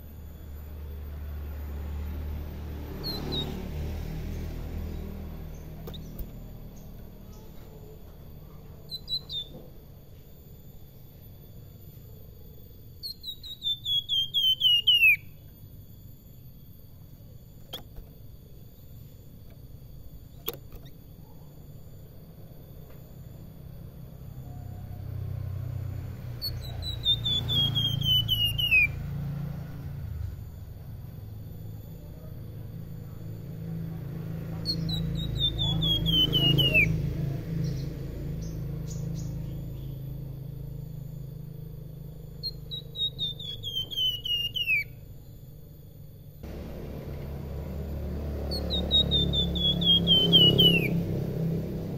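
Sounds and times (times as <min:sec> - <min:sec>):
bird whistled song: 0:02.9 - 0:07.5, 0:08.8 - 0:09.7, 0:13.0 - 0:15.5, 0:26.3 - 0:29.2, 0:34.5 - 0:40.1, 0:42.3 - 0:45.3, 0:48.4 - 0:51.5
sharp click: 0:20.4 - 0:21.0
low rumble: 0:46.4 - 0:51.9.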